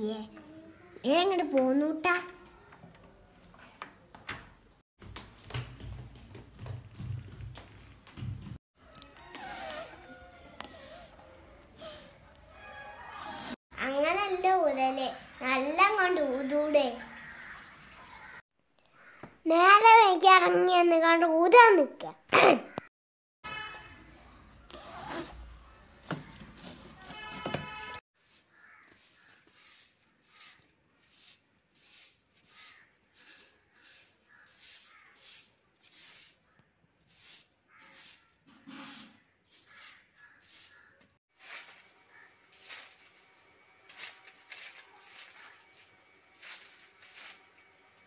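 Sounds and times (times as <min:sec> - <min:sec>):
broom sweeping earth and leaves: 0:28.2 - 0:36.4, 0:37.1 - 0:48.0.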